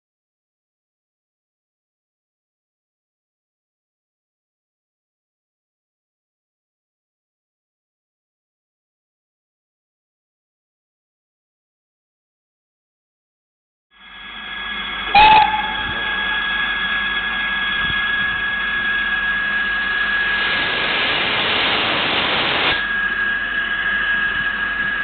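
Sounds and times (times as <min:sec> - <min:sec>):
locomotive whistle toot: 0:14.7 - 0:18.8
steam locomotive hissing: 0:14.8 - 0:23.2
rush of steam: 0:19.6 - 0:23.0.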